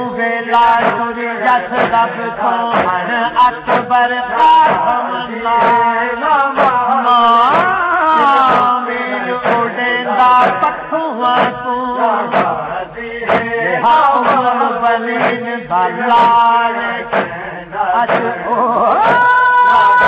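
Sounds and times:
man chanting a lament: 0.0 - 20.0
hands striking chest: 2.7 - 3.0.

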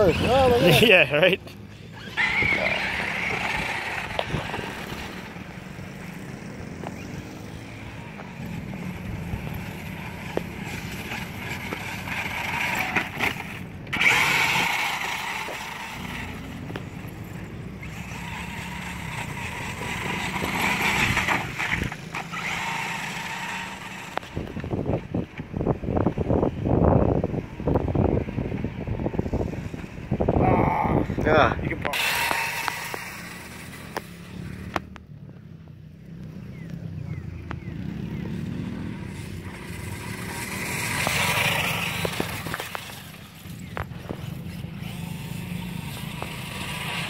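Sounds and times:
toy truck electric motor whining: 0.0 - 0.9, 1.9 - 5.4, 6.8 - 24.7, 31.9 - 34.8, 38.2 - 47.0.

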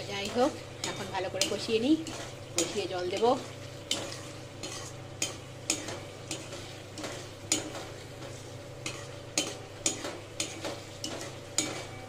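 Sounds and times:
gravy sizzling: 0.0 - 12.0
metal spatula scraping and knocking: 3.9 - 12.0.

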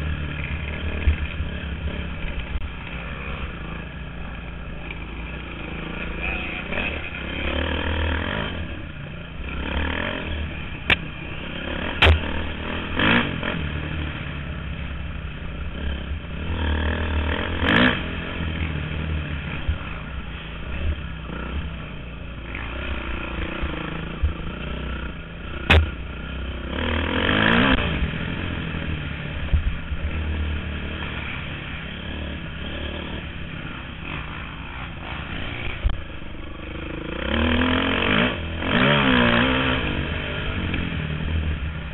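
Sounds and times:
motorcycle engine revving: 0.0 - 41.9.

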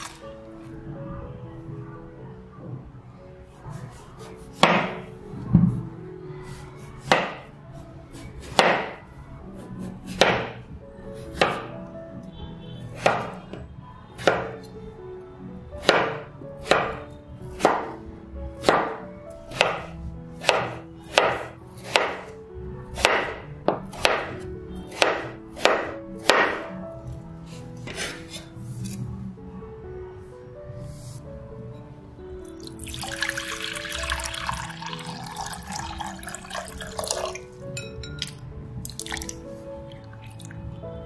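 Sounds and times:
soft background music: 0.0 - 41.0
knife chopping on wooden board: 4.6 - 5.0, 7.1 - 7.4, 8.6 - 9.0, 13.0 - 13.3, 14.2 - 14.6, 15.8 - 17.0, 17.6 - 18.0, 18.6 - 22.3, 23.0 - 26.7.

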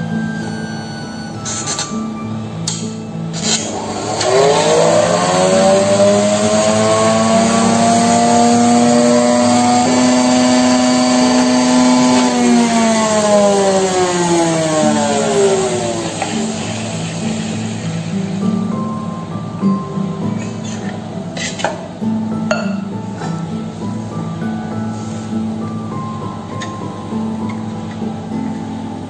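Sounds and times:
electric mixer motor whine: 3.4 - 18.8.

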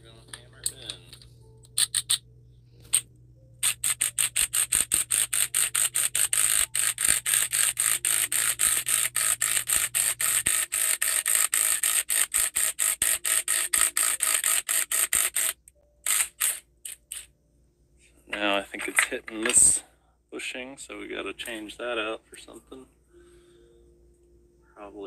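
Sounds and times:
impact wrench hammering: 3.6 - 17.3.

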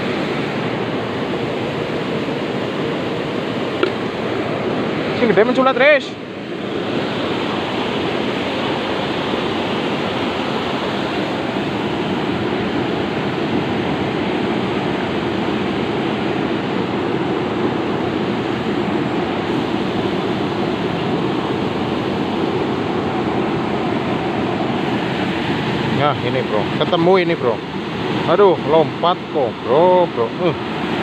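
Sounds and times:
river water rushing over rocks: 0.0 - 31.0.

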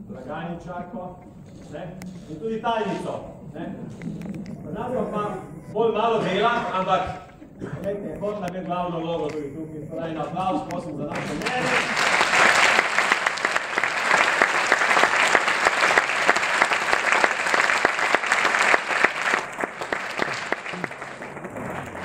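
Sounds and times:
audience applauding: 11.1 - 22.0.

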